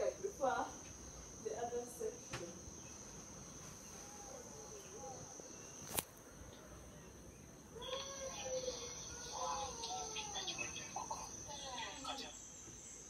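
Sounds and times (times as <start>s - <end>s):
insects chirring: 0.0s - 13.0s
faint voices talking: 7.8s - 12.5s.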